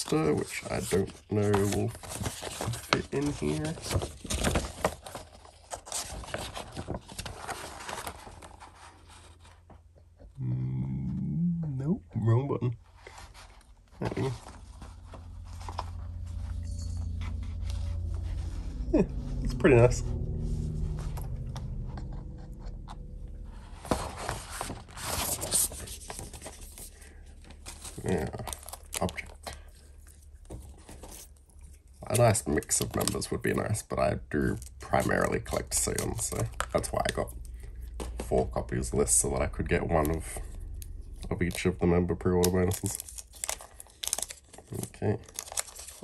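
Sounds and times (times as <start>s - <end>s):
paper rustling and crinkling: 0.0s - 9.7s, 23.6s - 33.8s, 39.9s - 46.0s.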